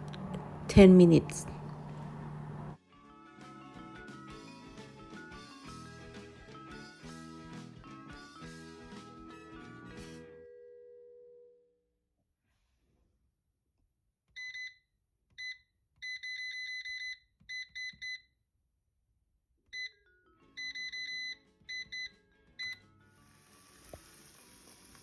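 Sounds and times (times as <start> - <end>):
background music: 2.8 - 10.4.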